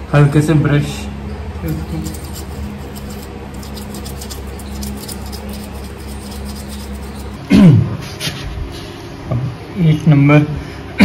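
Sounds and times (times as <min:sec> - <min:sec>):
brush scrubbing: 0:01.6 - 0:07.5.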